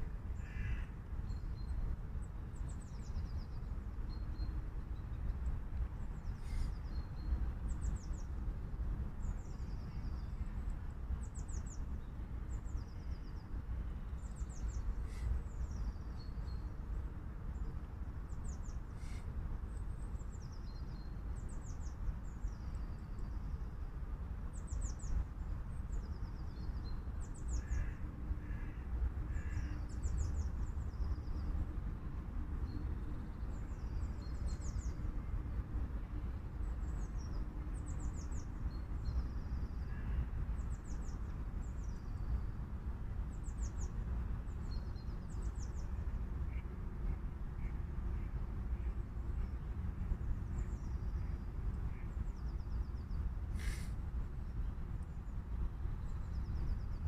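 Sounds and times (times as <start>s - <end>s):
bird cawing: 0.4s - 0.9s, 27.6s - 29.8s
songbirds trilling: 26.1s - 31.4s, 50.5s - 53.9s.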